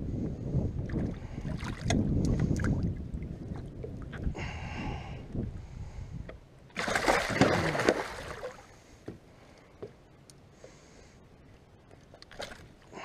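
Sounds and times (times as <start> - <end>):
fish thrashing and splashing: 6.8 - 8.6.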